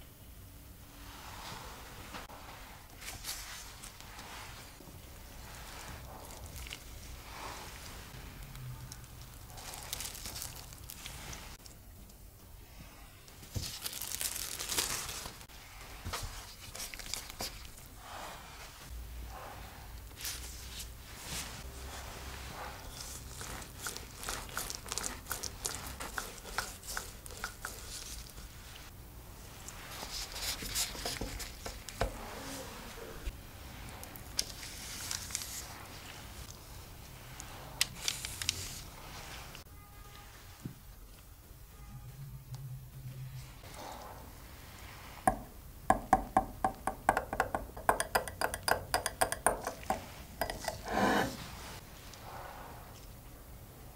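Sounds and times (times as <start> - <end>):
cling film crinkling: 8.5 - 11.6, 13.4 - 15.5, 16.4 - 17.8, 23.0 - 28.6, 34.4 - 36.5, 37.4 - 38.9
parchment paper rustling: 9.0 - 11.7, 13.4 - 17.9, 20.2 - 28.9, 29.6 - 33.0, 34.1 - 39.6.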